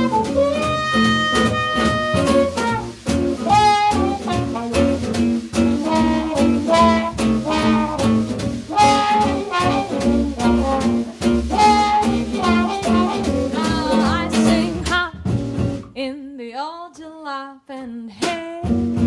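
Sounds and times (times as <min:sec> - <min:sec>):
trumpet lead: 0:00.0 - 0:15.0
gypsy-jazz guitar: 0:00.0 - 0:16.0, 0:17.8 - 0:19.0
upright bass: 0:00.0 - 0:16.0
drums: 0:00.0 - 0:19.0
person singing without words: 0:13.3 - 0:15.2.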